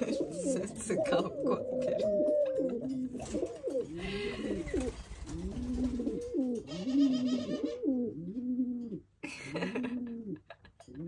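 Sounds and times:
pigeon cooing: 0.0s - 10.6s
rustling: 3.0s - 7.0s.

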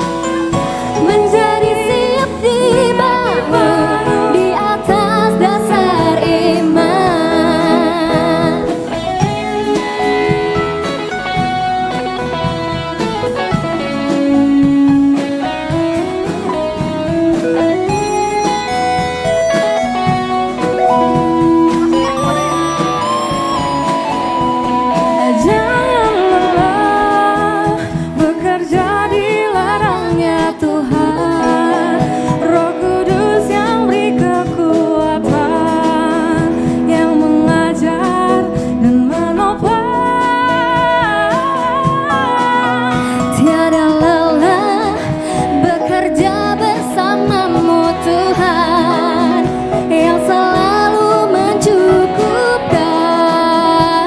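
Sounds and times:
drum kit: 0.0s - 54.0s
electric and acoustic guitars: 0.0s - 54.0s
keyboard: 0.0s - 54.0s
female singers: 0.9s - 9.3s, 25.0s - 54.0s.

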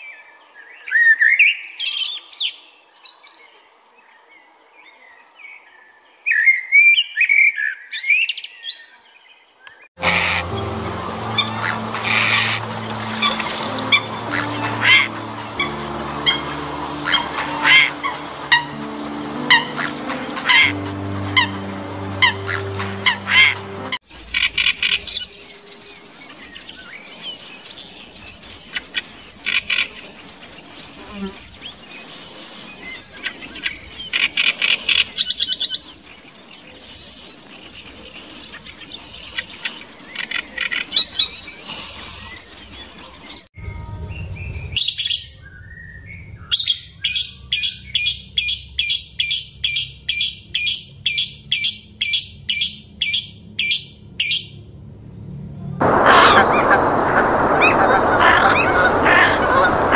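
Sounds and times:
lovebird chirping: 10.0s - 28.4s
warbler singing: 10.0s - 28.4s, 44.1s - 54.6s.

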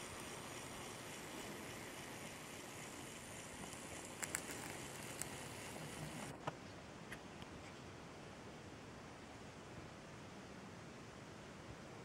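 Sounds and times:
small clicks: 0.0s - 6.3s
faint background hiss: 0.0s - 12.0s.

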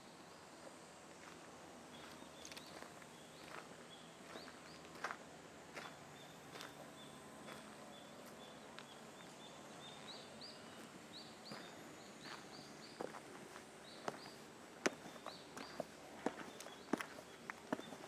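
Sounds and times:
footsteps on dirt and stone: 1.2s - 6.8s, 10.7s - 18.0s
bird chirping: 1.9s - 5.1s, 5.8s - 13.2s, 13.8s - 18.0s.

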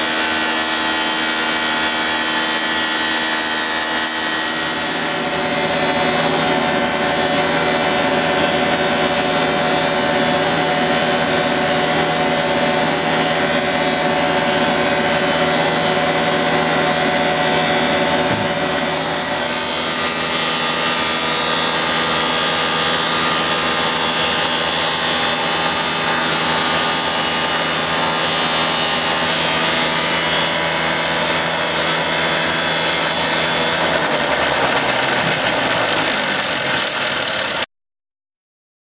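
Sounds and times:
wall planer grinding: 0.0s - 37.7s.

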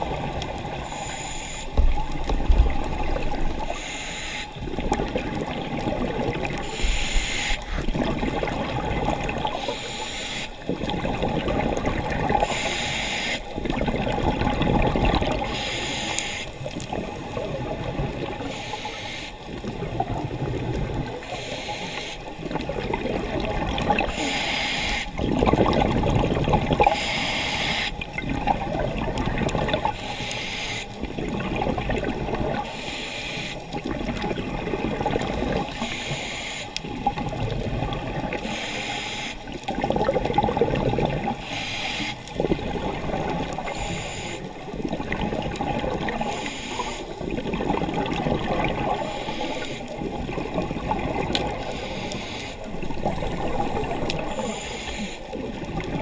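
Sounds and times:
exhaled air bubbling: 0.0s - 56.0s
regulator inhalation hiss: 3.7s - 4.6s, 6.6s - 7.8s, 9.6s - 10.6s, 12.4s - 13.5s, 15.4s - 16.6s, 18.4s - 19.4s, 21.2s - 22.2s, 24.1s - 25.2s, 26.9s - 28.0s, 30.0s - 31.0s, 32.6s - 33.7s, 35.7s - 36.8s, 38.4s - 39.6s, 41.4s - 42.2s, 43.7s - 44.5s, 46.2s - 47.2s, 49.0s - 50.0s, 51.6s - 52.8s, 54.3s - 55.3s.

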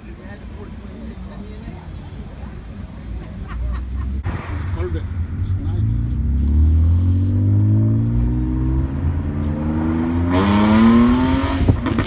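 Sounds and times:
car engine revving: 4.0s - 12.0s.

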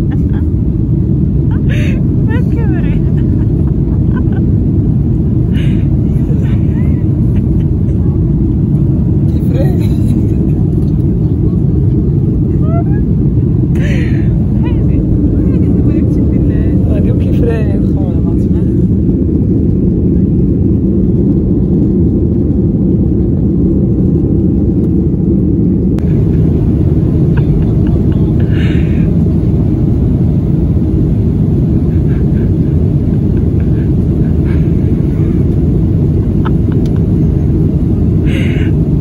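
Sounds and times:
jet engines rumbling: 0.0s - 39.0s
air rushing: 18.4s - 39.0s.

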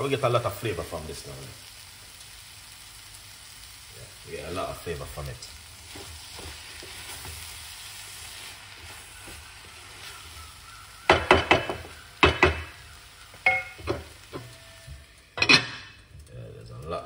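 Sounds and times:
food sizzling in a metal pot: 0.0s - 17.0s
wooden spoon stirring: 5.8s - 12.6s.

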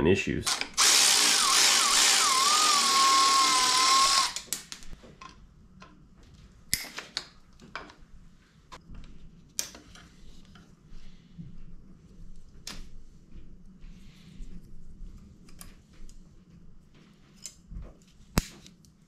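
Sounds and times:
electric ratchet motor whine: 0.5s - 4.4s.

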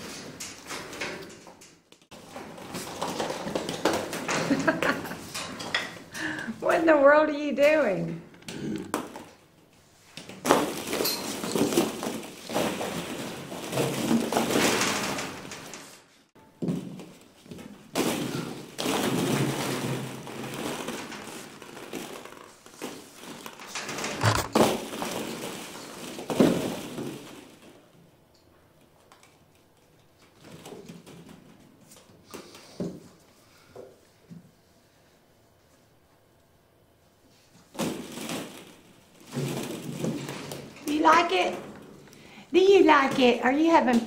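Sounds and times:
plastic balls clattering and rustling: 0.0s - 6.1s, 10.2s - 28.0s, 37.5s - 44.0s.

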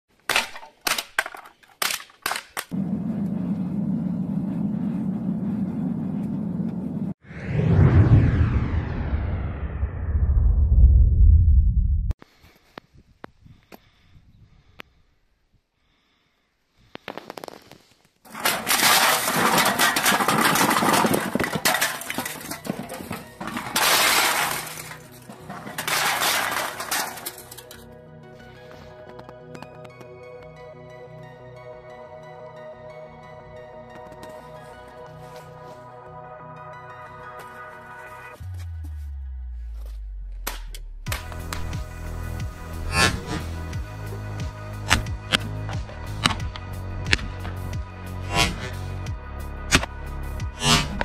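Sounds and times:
hammer flattening cans: 18.3s - 27.8s.

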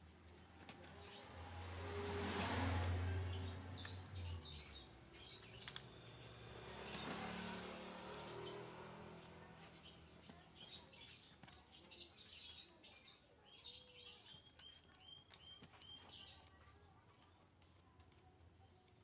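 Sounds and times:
clicks and scrapes of plastic cover: 14.0s - 19.0s.

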